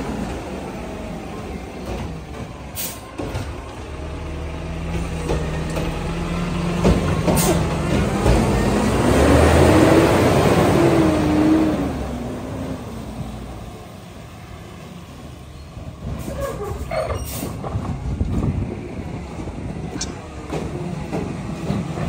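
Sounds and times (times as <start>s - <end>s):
garbage truck engine accelerating: 0.0s - 12.9s
air brake hiss: 2.8s - 3.1s
brake squeals: 15.5s - 17.7s.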